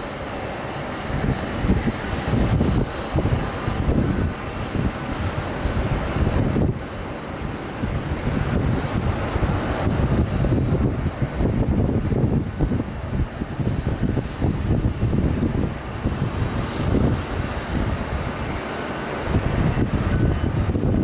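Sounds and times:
jet engines at takeoff power: 0.0s - 21.0s.

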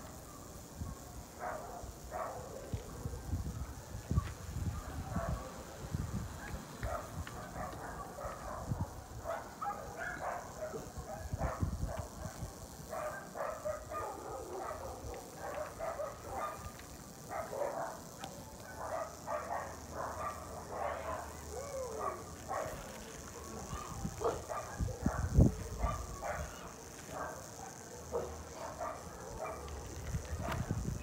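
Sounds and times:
dog barking: 0.8s - 2.7s, 4.7s - 5.5s, 6.4s - 16.7s, 17.3s - 18.0s, 18.6s - 21.4s, 22.0s - 29.7s.

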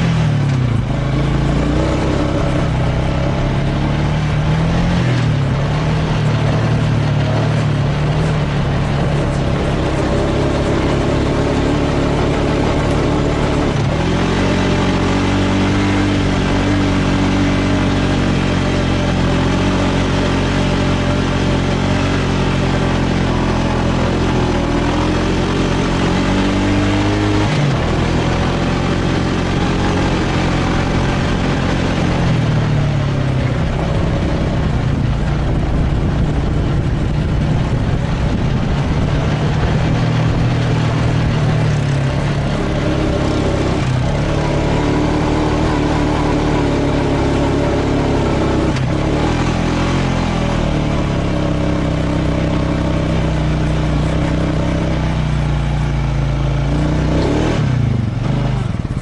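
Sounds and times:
wind noise: 0.0s - 51.8s
atv engine running: 0.0s - 59.0s.

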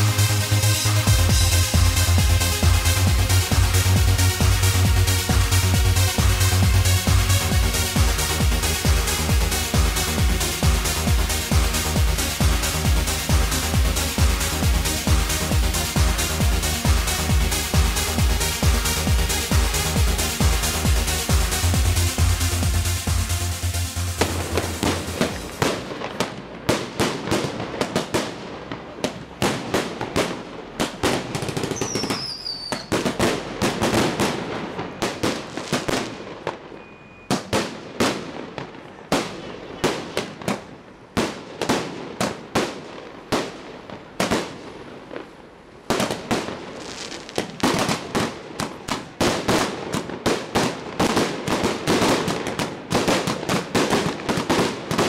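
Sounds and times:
firecrackers crackling: 0.0s - 55.0s
short falling whistle: 31.8s - 32.9s, 36.8s - 37.4s.

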